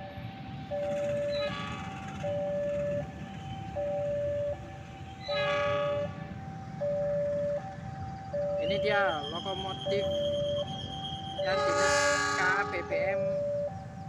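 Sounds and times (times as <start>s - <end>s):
train horn: 1.1s - 3.5s, 5.2s - 6.6s, 10.7s - 13.3s
level-crossing alarm ding-dong: 8.4s - 13.8s.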